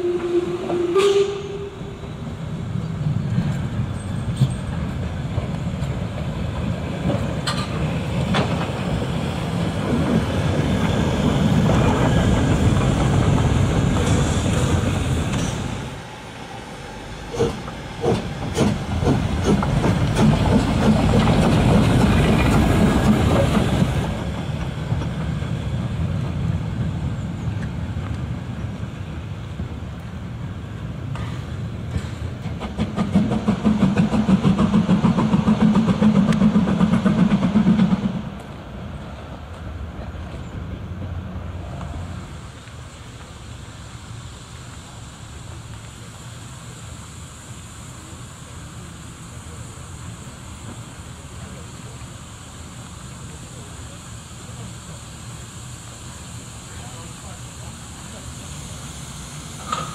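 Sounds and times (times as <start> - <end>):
steam locomotive hissing steam: 0.0 - 59.9
wheels clicking over rail joints: 3.5 - 15.7, 17.3 - 25.4, 59.6 - 59.9.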